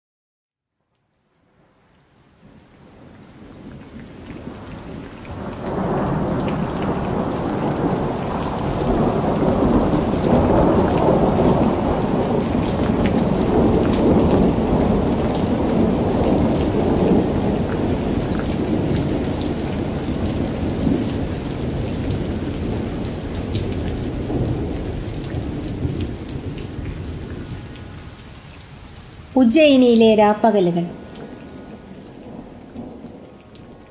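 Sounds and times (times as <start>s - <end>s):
heavy rain pattering: 1.7s - 33.9s
rolling thunder rumble: 30.9s - 33.9s.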